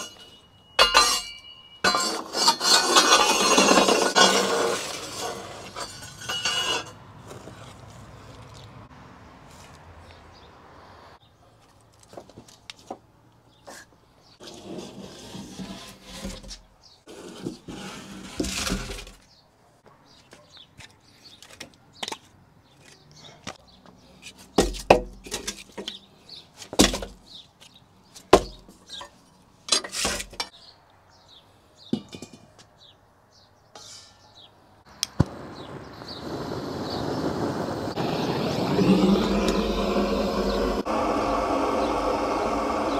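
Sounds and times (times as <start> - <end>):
gas torch hissing: 35.0 - 42.9.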